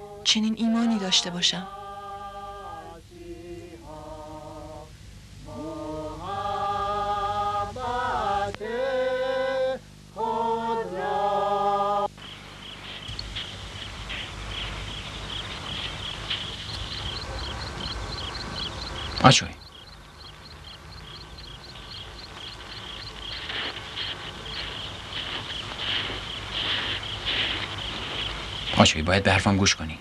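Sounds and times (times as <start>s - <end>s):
group singing a hymn unaccompanied: 0.0s - 29.2s
crickets chirping: 12.0s - 30.0s.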